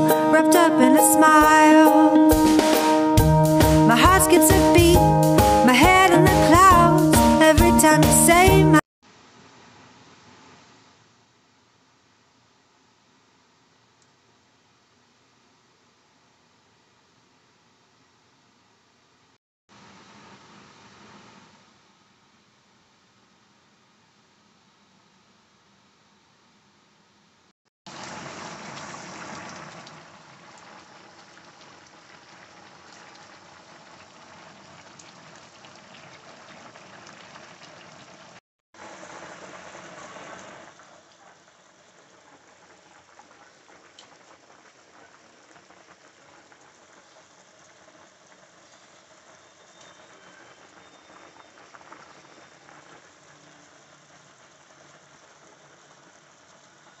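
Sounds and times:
chicken simmering in gravy: 0:27.9 - 0:57.0
stew bubbling and crackling: 0:27.9 - 0:57.0.

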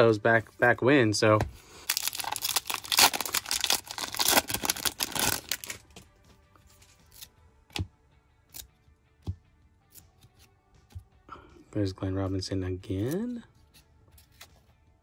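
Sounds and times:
plastic wrapper tearing and crinkling: 0:01.9 - 0:06.0.

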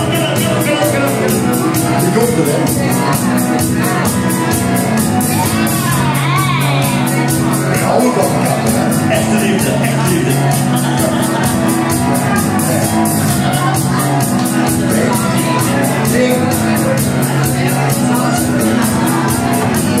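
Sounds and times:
man singing into a microphone: 0:00.0 - 0:02.8, 0:07.8 - 0:11.4, 0:14.8 - 0:19.3
live pop music through a pa: 0:00.0 - 0:20.0.

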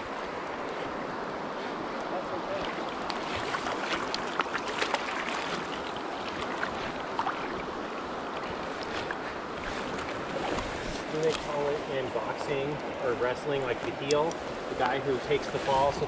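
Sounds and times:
stream running: 0:00.0 - 0:16.0
fish splashing: 0:02.4 - 0:11.0.

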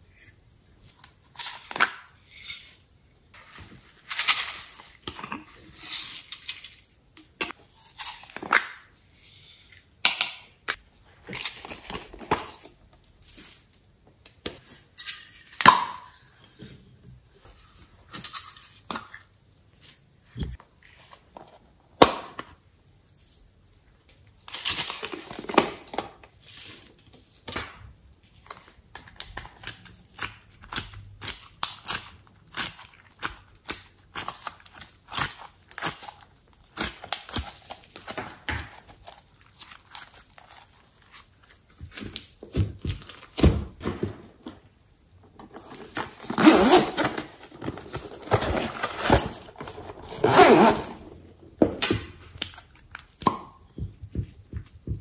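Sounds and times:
pencil case unzipping: 0:46.3 - 0:51.0.

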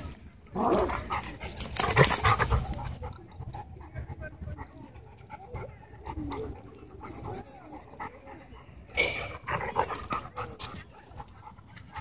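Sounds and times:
dogs panting: 0:00.9 - 0:12.0.

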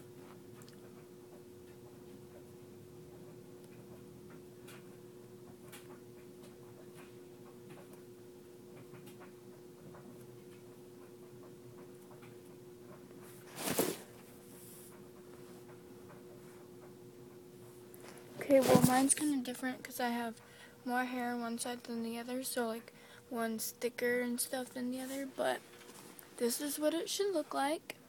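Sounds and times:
steady low hum: 0:00.0 - 0:28.0
hands braiding hair rustling: 0:13.3 - 0:15.5, 0:18.0 - 0:19.5, 0:24.5 - 0:27.7.

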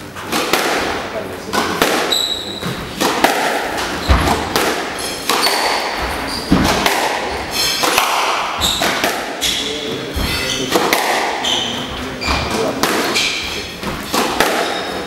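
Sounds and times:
squash ball cracking off rackets: 0:00.2 - 0:09.5, 0:10.7 - 0:11.8, 0:12.4 - 0:15.0
shoes squeaking on wooden floor: 0:02.1 - 0:03.0, 0:03.7 - 0:15.0.

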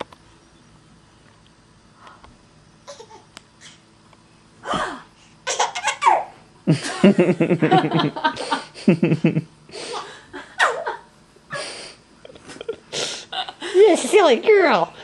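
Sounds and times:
baby giggling: 0:02.9 - 0:03.2, 0:05.5 - 0:06.3
woman laughing: 0:06.7 - 0:14.3.

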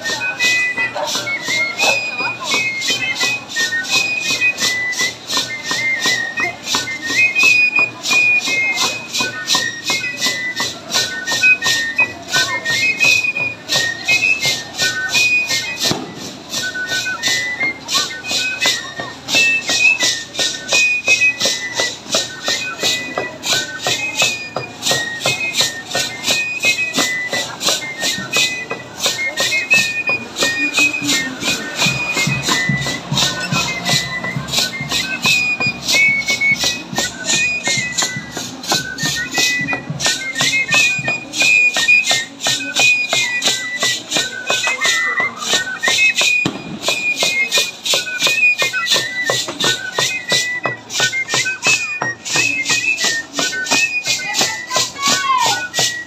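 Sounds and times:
high-pitched pipe melody: 0:00.0 - 0:56.0.

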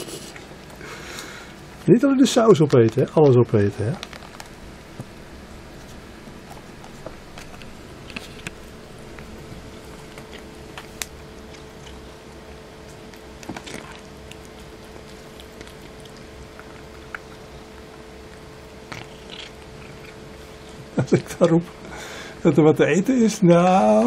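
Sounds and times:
cat chewing and lapping: 0:03.9 - 0:21.6.

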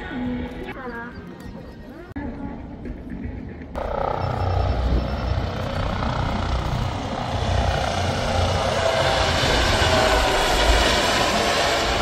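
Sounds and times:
aircraft engine: 0:03.8 - 0:12.0.

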